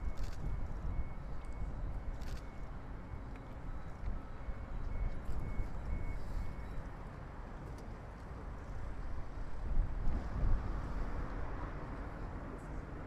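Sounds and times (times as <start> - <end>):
faint high beeps: 0.1 - 7.0.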